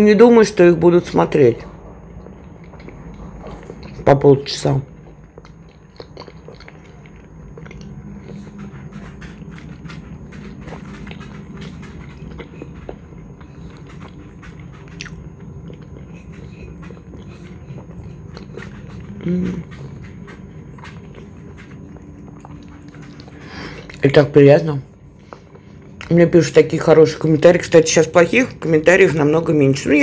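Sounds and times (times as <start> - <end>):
person chewing food: 1.9 - 4.1, 4.9 - 24.0.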